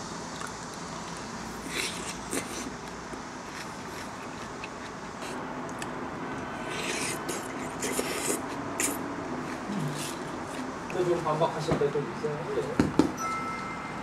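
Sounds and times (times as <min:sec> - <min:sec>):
person slurping food: 0:01.5 - 0:02.8, 0:06.6 - 0:10.3.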